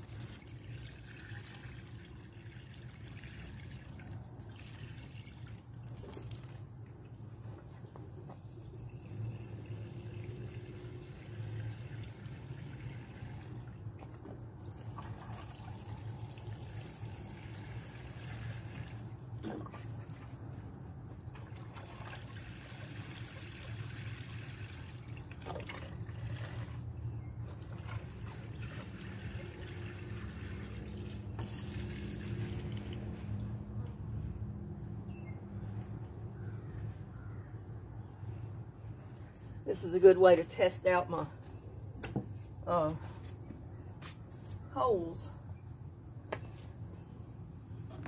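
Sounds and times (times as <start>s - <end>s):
water pouring into soil: 0.0s - 14.0s, 14.6s - 27.0s, 27.6s - 33.6s.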